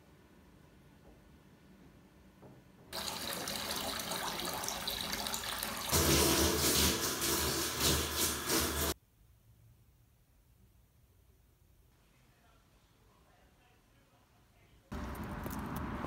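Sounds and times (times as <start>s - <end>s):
water running in a bathtub: 2.9s - 9.0s
shower spray hitting floor: 5.9s - 9.0s.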